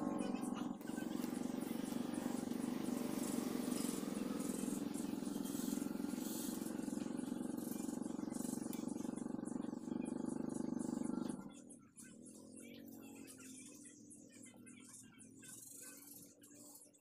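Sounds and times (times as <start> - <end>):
steady low drone: 0.0 - 11.4.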